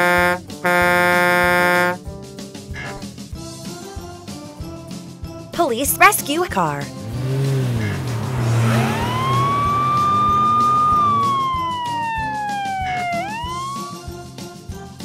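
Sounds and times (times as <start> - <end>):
background music with bouncy bass: 0.0 - 15.0
police siren wailing: 7.6 - 14.1.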